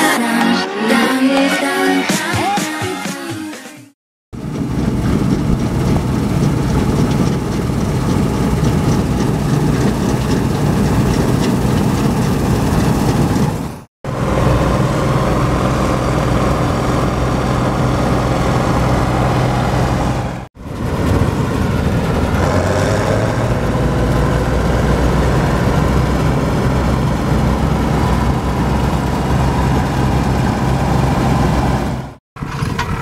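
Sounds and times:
diesel engine drone: 0:04.4 - 0:33.0
threshing gear rattling: 0:04.6 - 0:13.8.

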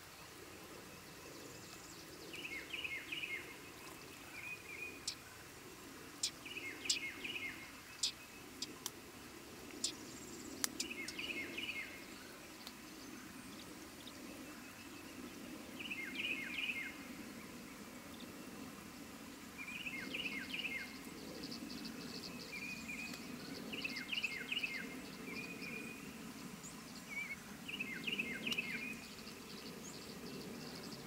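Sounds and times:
swallow twittering chirps: 0:01.0 - 0:05.3, 0:06.2 - 0:08.8, 0:19.6 - 0:31.0.

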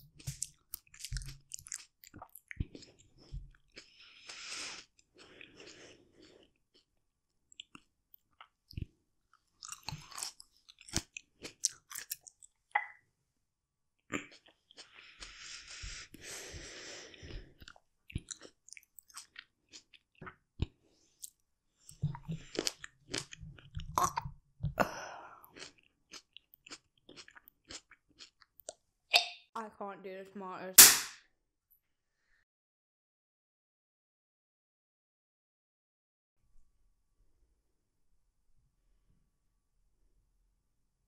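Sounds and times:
person chewing with mouth clicks: 0:00.1 - 0:13.0, 0:14.0 - 0:29.4
breathing: 0:03.8 - 0:06.5, 0:14.8 - 0:17.6, 0:20.8 - 0:21.2, 0:24.8 - 0:25.6, 0:32.1 - 0:32.4.

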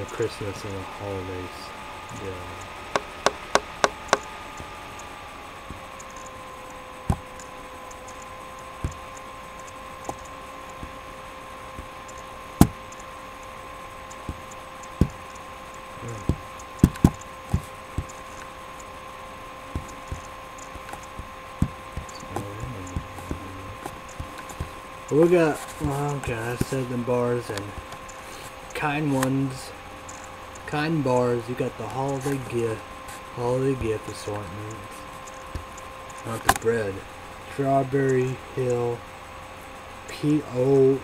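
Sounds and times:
steady hum: 0:00.0 - 0:41.0
sharp clicks and knocks: 0:02.6 - 0:05.1, 0:16.2 - 0:18.9.

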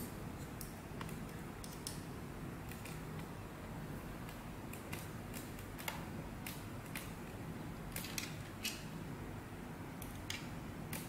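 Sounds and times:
low steady background hum: 0:00.0 - 0:11.0.

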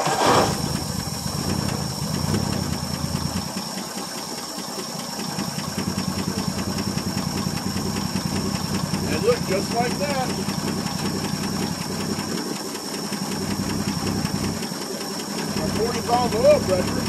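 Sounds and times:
truck engine idling: 0:00.0 - 0:17.0.

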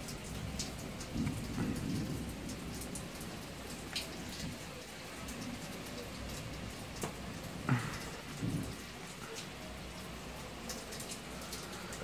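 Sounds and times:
sharp ticks of raindrops: 0:00.0 - 0:12.0
steady rain falling: 0:00.0 - 0:12.0
low rumble of thunder: 0:00.5 - 0:04.7, 0:07.5 - 0:09.1.

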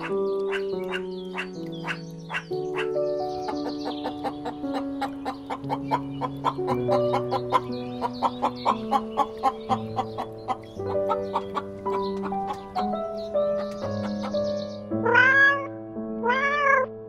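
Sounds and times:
hens clucking: 0:00.0 - 0:14.4
slow held chords music: 0:00.0 - 0:17.0.

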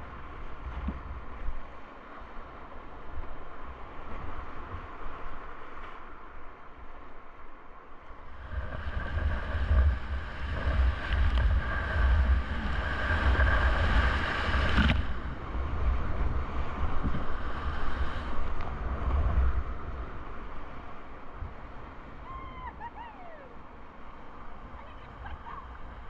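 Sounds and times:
wind buffeting microphone: 0:08.0 - 0:26.0
whitewater rushing and splashing: 0:08.3 - 0:20.0.

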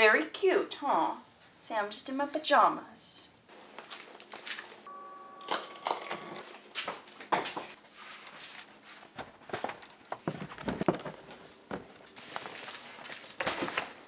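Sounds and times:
knocks and rustles of handling: 0:06.4 - 0:14.0.

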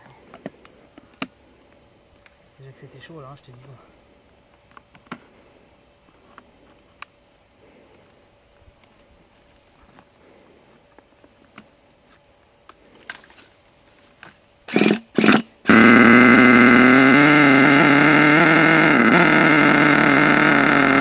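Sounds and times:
model engine running loud: 0:14.7 - 0:21.0.

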